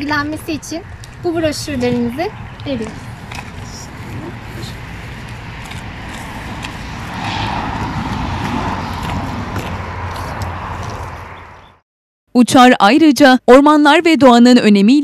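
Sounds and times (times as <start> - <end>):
low rumble: 0.0 - 11.6.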